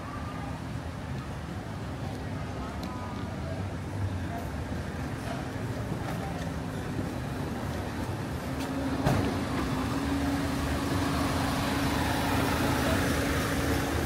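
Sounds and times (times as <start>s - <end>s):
city street traffic: 0.0s - 14.0s
motor vehicle humming: 3.9s - 14.0s.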